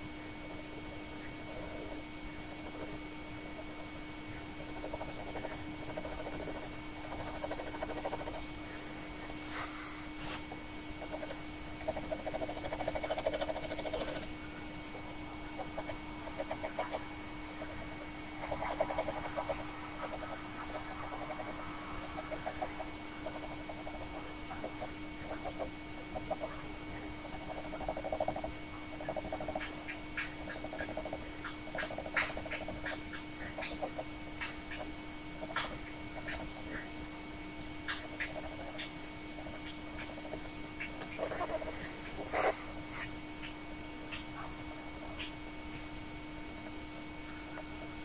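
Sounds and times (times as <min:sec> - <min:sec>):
faint steady hum: 0:00.0 - 0:48.0
pen nib scratching paper: 0:04.6 - 0:08.4, 0:11.0 - 0:14.3, 0:15.6 - 0:26.5.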